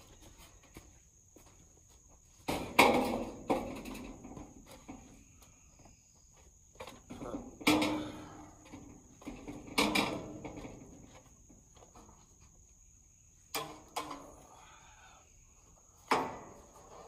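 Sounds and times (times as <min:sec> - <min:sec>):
high insect drone: 0:00.0 - 0:17.0
metal roof panels clattering: 0:02.4 - 0:05.2, 0:06.8 - 0:11.3
metal bangs and rattles: 0:07.1 - 0:11.2.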